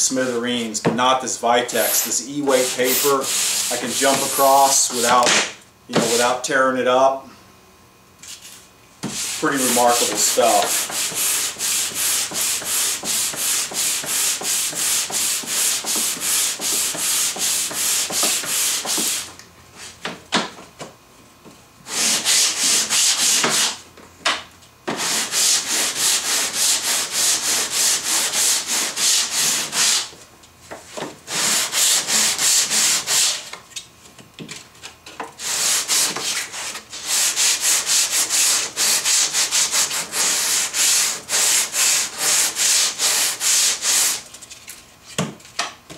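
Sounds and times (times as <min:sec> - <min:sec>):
hand sanding wood: 0:01.7 - 0:05.2, 0:05.9 - 0:06.4, 0:08.3 - 0:20.0, 0:21.8 - 0:23.8, 0:24.9 - 0:30.2, 0:30.8 - 0:33.5, 0:35.4 - 0:44.2.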